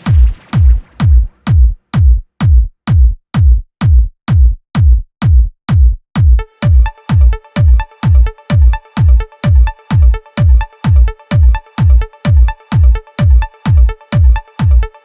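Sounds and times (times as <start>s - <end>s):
electronic dance music: 0.0s - 2.6s, 5.8s - 15.0s
kick drum: 0.0s - 15.0s.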